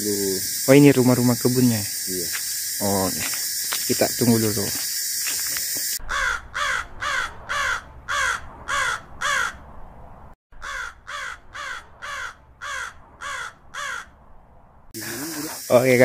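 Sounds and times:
crow cawing: 6.0s - 9.6s, 10.6s - 14.2s.

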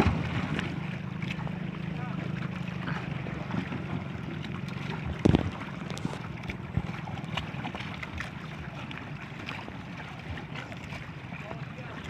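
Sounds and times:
boat engine running: 0.0s - 12.0s
sea noise: 0.0s - 12.0s
wind on microphone: 5.0s - 7.2s.

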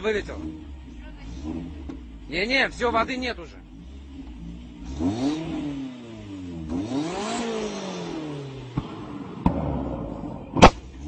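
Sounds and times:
car engine revving: 0.0s - 11.0s
exhaust pops: 8.0s - 11.0s.

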